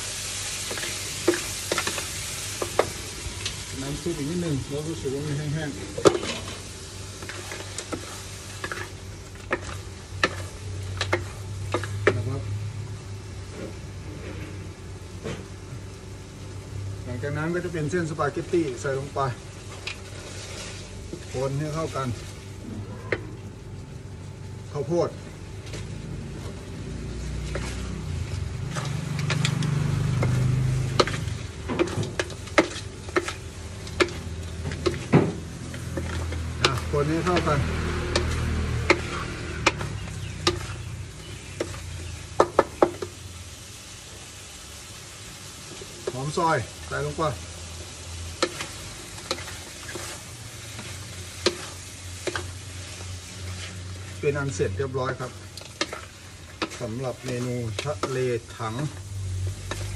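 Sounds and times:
spatula scraping wok: 0.0s - 12.7s, 19.6s - 22.6s, 25.2s - 43.4s, 45.3s - 59.9s
food sizzling in a pan: 0.0s - 59.9s
spatula knocking and scraping pan: 7.2s - 12.2s, 30.2s - 40.8s, 41.5s - 43.1s, 48.4s - 50.2s, 50.8s - 52.5s, 55.7s - 58.9s.

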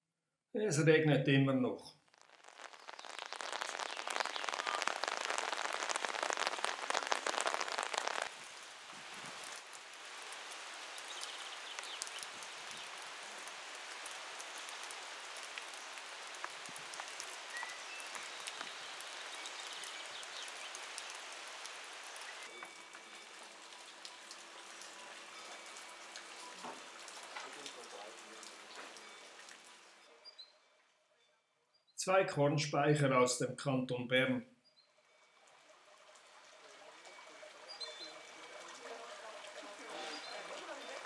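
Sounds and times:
rain falling: 2.0s - 30.1s, 35.4s - 41.0s.

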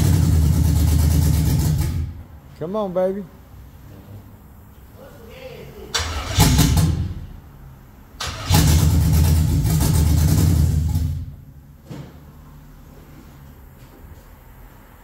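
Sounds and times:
truck engine cranking and running: 0.0s - 2.2s, 5.9s - 7.3s, 8.2s - 11.4s.

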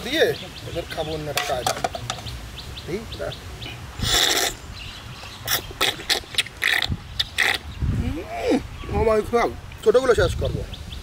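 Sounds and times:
man slurping syrup: 4.0s - 4.6s, 5.4s - 7.7s.

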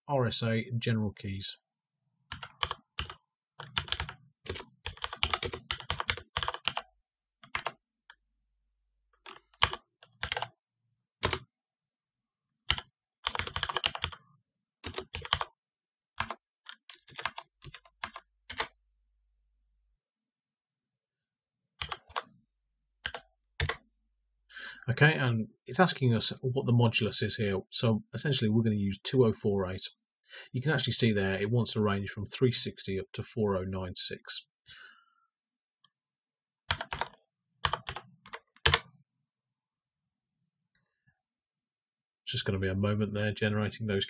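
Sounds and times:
computer keyboard typing: 2.3s - 7.8s, 9.2s - 10.6s, 11.2s - 11.4s, 12.7s - 14.2s, 14.8s - 15.5s, 16.2s - 18.8s, 21.8s - 22.3s, 23.0s - 23.8s, 36.7s - 38.9s.

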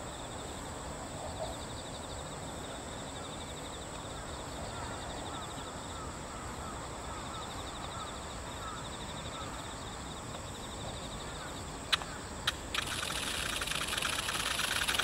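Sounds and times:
insects buzzing and chirping: 0.0s - 15.0s
short repeated insect chirps: 7.1s - 15.0s.

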